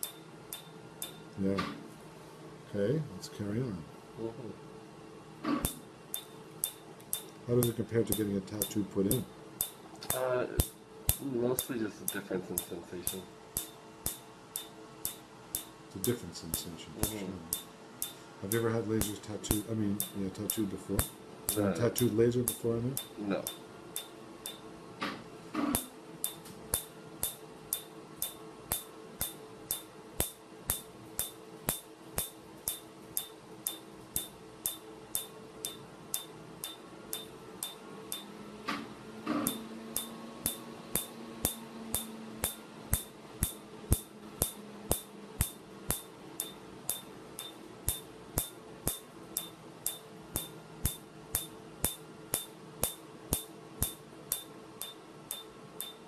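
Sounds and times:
laser unit hum: 0.0s - 56.0s
laser pulse snaps: 39.3s - 56.0s.

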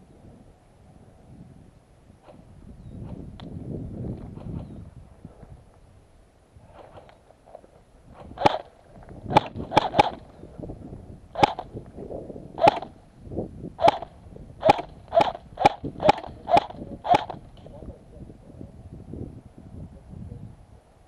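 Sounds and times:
airsoft rifle shots: 8.2s - 8.7s, 9.3s - 10.3s, 11.3s - 11.7s, 12.6s - 13.0s, 13.8s - 17.4s.

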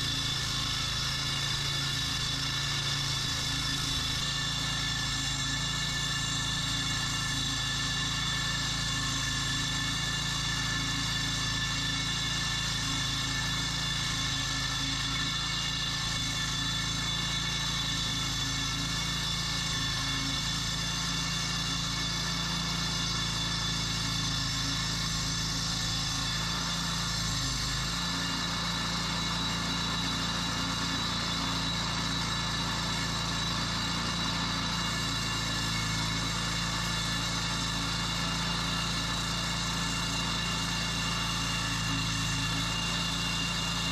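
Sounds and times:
small gas engine running: 0.0s - 43.9s.

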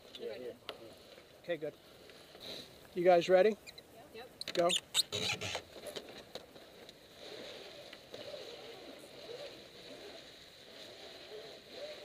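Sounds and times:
water washing along hull: 7.1s - 12.0s.

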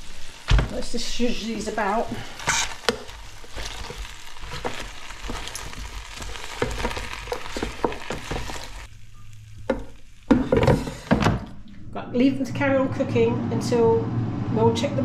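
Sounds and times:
fat sizzling: 0.0s - 11.6s
tongs scraping metal basket: 0.8s - 8.9s.

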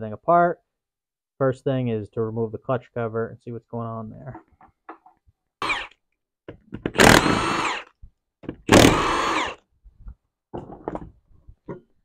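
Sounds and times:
impact wrench bursts: 6.9s - 7.9s, 8.6s - 9.6s.

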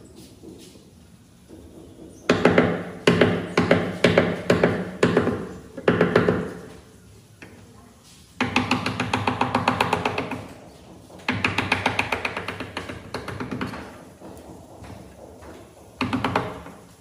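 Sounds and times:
hammer striking chisel: 2.0s - 6.6s, 11.2s - 16.9s.

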